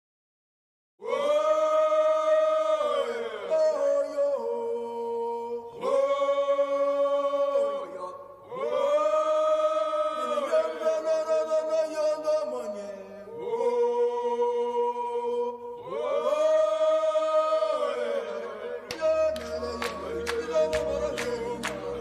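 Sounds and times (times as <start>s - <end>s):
chanted vocal with held notes: 1.0s - 22.0s
background music: 15.8s - 22.0s.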